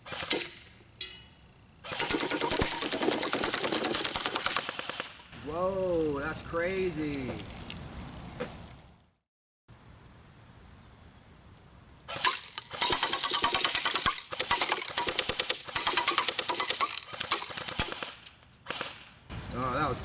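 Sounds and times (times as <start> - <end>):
electric bb rifle full-auto bursts: 1.9 - 5.2, 12.1 - 19.1.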